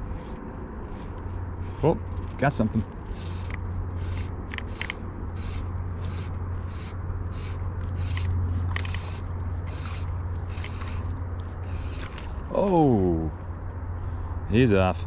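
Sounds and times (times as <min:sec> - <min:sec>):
fly line zipping through guides: 0:00.0 - 0:12.7
steady low rumble: 0:00.0 - 0:15.0.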